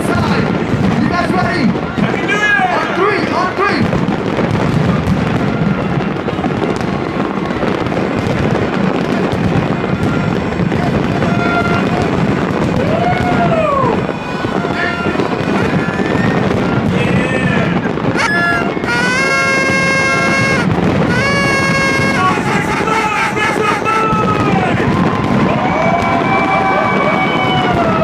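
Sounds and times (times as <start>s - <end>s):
fireworks bursting and crackling: 0.0s - 28.0s
noisy crowd: 0.0s - 28.0s
person whooping: 18.2s - 24.5s.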